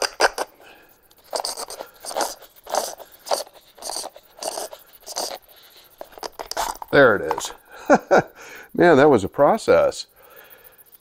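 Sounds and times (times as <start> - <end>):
oil filter rubbing and scraping: 0.0 - 7.6.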